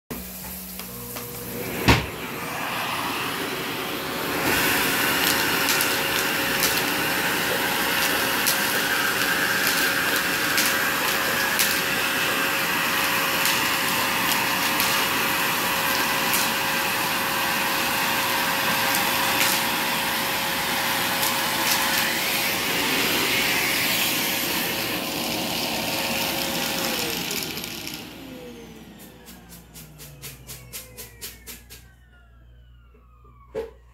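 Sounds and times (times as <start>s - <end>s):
vacuum cleaner motor whine: 0.1s - 33.9s.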